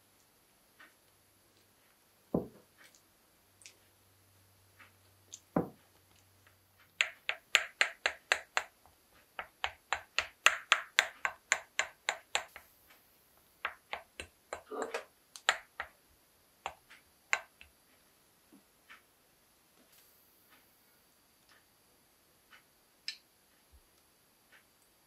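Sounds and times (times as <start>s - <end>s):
dull thumps of dough pressed: 2.3s - 2.8s, 5.4s - 6.0s, 6.8s - 12.8s, 13.6s - 16.0s.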